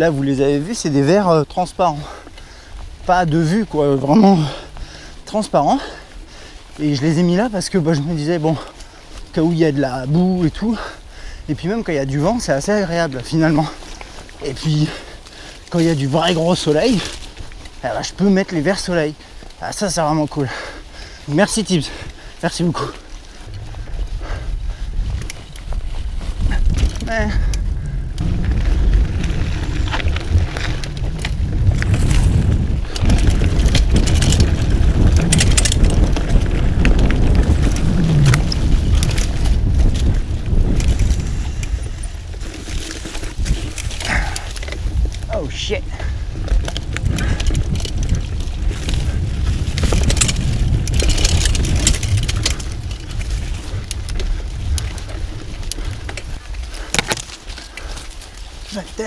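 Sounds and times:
bike rattling and clicking: 0.0 - 59.0
bike tyres rumbling on dirt: 0.0 - 59.0
leaves and branches brushing: 0.0 - 59.0
wind on microphone: 20.5 - 59.0.

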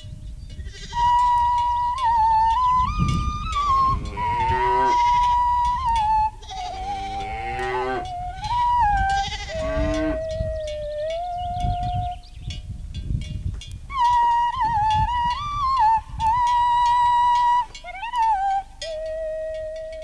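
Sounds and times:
farm animals bleating: 0.6 - 1.0, 4.0 - 5.3, 6.4 - 8.1, 9.1 - 10.2
flute-like folk melody: 0.8 - 12.8, 13.8 - 20.0.

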